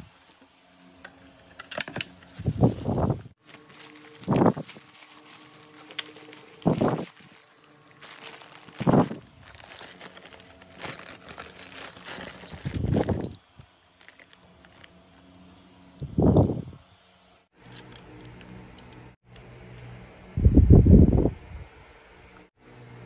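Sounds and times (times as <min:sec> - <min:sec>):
bubble wrap crinkling: 0:02.3 - 0:16.6
plastic zip bag crinkling: 0:02.4 - 0:16.5.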